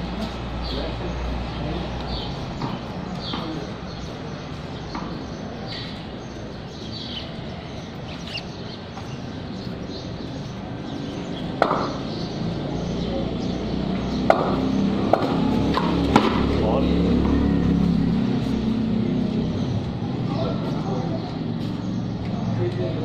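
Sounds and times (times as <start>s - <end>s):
small birds chirping: 0.0s - 23.0s
cricket bat hitting ball: 14.3s - 16.4s.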